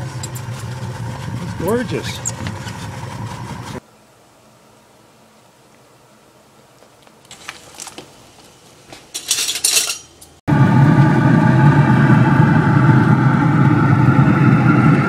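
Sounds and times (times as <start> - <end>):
mechanical rumble with hum: 0.0 - 3.8, 10.2 - 15.0.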